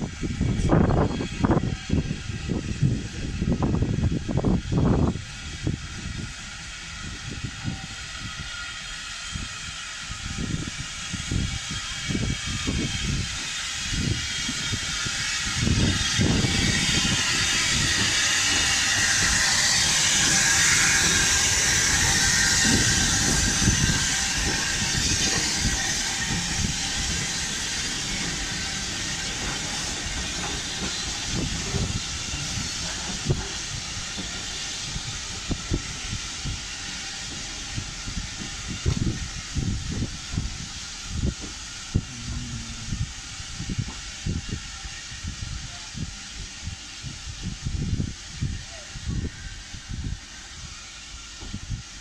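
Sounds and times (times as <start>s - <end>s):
steam locomotive hissing: 0.0s - 52.0s
train knocking: 11.3s - 44.4s.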